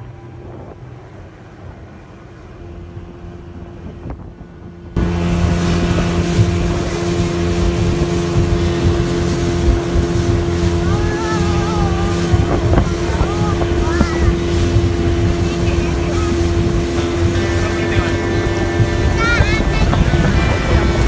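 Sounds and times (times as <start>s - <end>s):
speedboat engine running: 0.0s - 21.0s
wind buffeting microphone: 0.0s - 21.0s.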